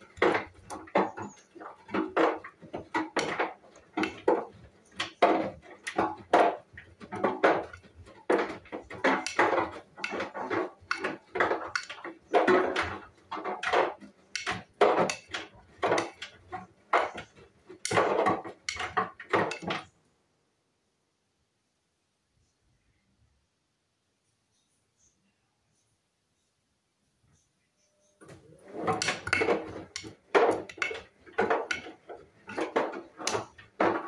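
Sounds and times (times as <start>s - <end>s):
washing machine drum turning: 28.2s - 34.0s.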